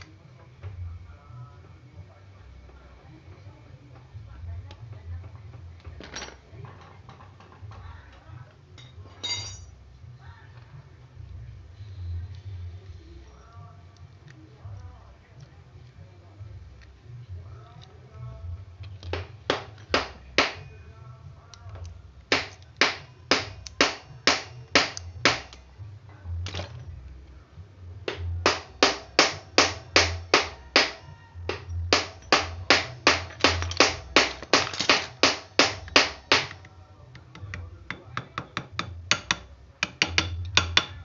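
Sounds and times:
background music with beat: 0:27.9 - 0:36.6.

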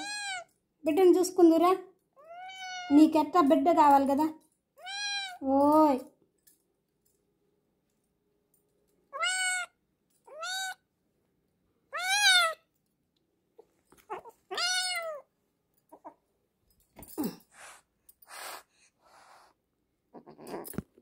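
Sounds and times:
kitten meowing: 0:00.0 - 0:00.5, 0:02.2 - 0:02.9, 0:04.8 - 0:05.4, 0:09.2 - 0:10.8, 0:11.9 - 0:12.6, 0:14.1 - 0:15.2.

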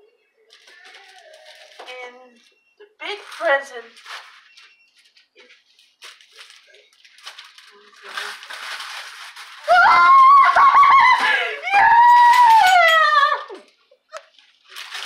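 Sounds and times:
wrapping paper rustling and tearing: 0:00.5 - 0:12.6, 0:13.6 - 0:15.0
woman squealing with delight: 0:09.6 - 0:13.6.

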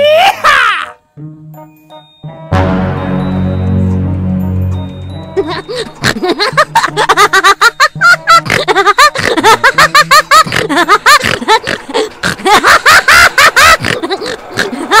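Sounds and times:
high-pitched giggles: 0:05.4 - 0:15.0.

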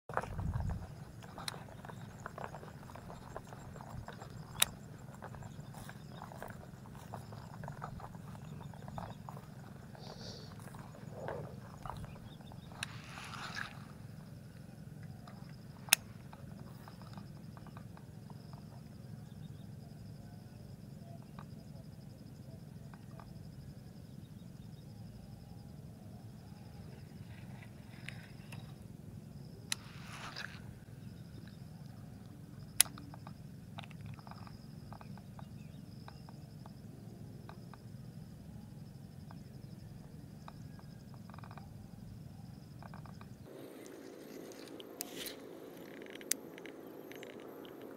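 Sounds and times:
low wind rumble: 0:00.1 - 0:13.0
insect trilling: 0:00.1 - 0:47.9
low steady hum: 0:00.1 - 0:47.9.

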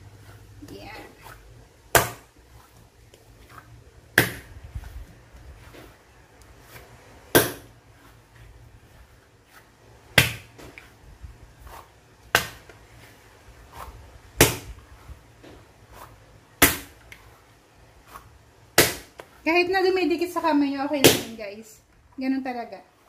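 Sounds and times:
dough pressing and folding: 0:00.0 - 0:23.0
dough slapped onto a mat: 0:01.9 - 0:02.4, 0:04.1 - 0:04.6, 0:07.3 - 0:07.8, 0:10.1 - 0:10.9, 0:12.2 - 0:12.8, 0:13.8 - 0:14.8, 0:16.6 - 0:17.3, 0:18.8 - 0:19.4.

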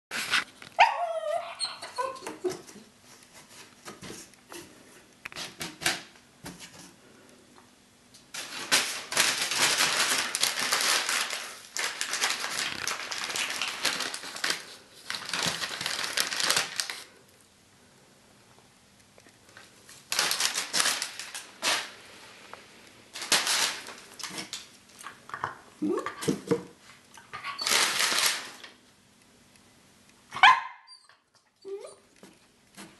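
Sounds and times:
paper rustling and crinkling: 0:00.1 - 0:00.6, 0:08.3 - 0:17.2, 0:19.5 - 0:22.0, 0:23.1 - 0:25.0, 0:26.4 - 0:28.8
dog whining: 0:00.8 - 0:02.9, 0:27.3 - 0:27.9, 0:30.4 - 0:32.2.

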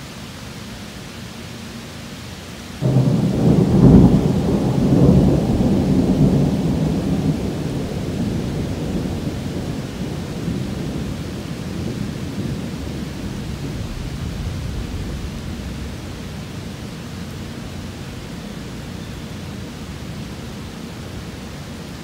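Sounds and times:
heavy rain: 0:00.0 - 0:22.0
thunder clap and rumble: 0:02.8 - 0:17.7.

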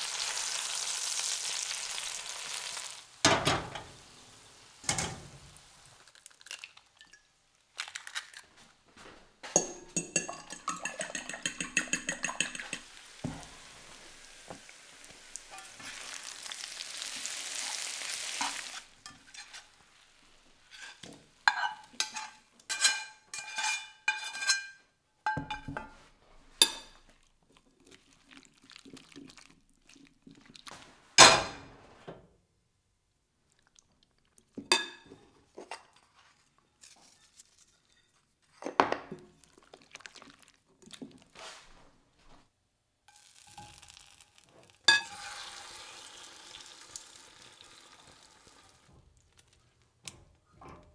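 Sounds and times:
potatoes sizzling in a skillet: 0:00.0 - 0:06.2, 0:12.2 - 0:22.2, 0:43.1 - 0:48.9
utensils clinking and scraping: 0:09.5 - 0:12.9.

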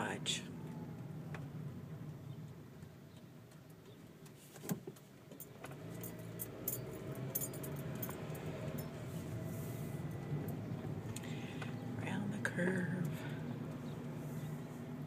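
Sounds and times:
car engine and road noise: 0:00.0 - 0:15.0
light metallic jingling: 0:05.4 - 0:11.1.

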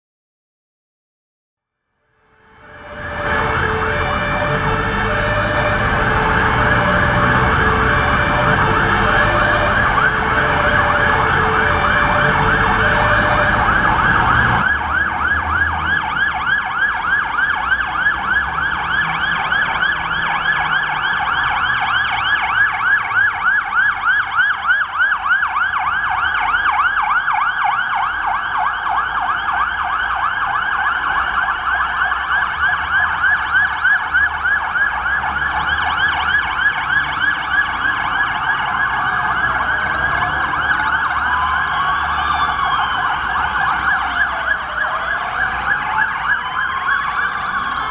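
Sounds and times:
fire engine siren yelp: 0:02.1 - 0:47.9
two-note siren signal: 0:02.3 - 0:10.2
engine and traffic rumble: 0:02.5 - 0:47.9.

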